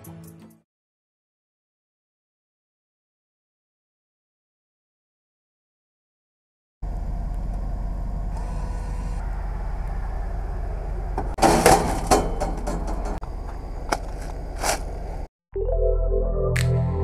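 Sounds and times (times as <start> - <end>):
vending machine humming: 6.8 - 15.3.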